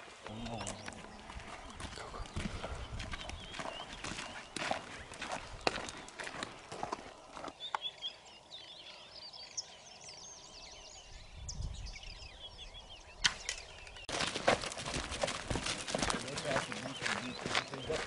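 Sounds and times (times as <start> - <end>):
footsteps crunching on dry ground: 0.0 - 8.1, 14.1 - 18.0
small birds chirping: 0.2 - 18.0.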